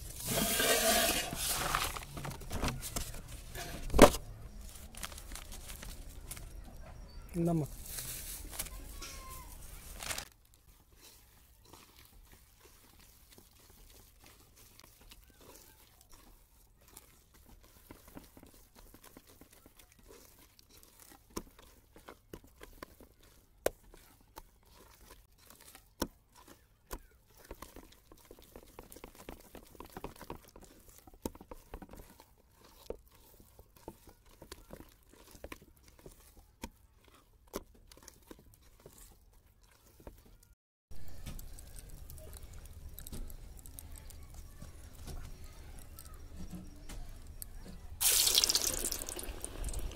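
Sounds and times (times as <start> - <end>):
hand squelching wet batter: 0.0 - 49.9.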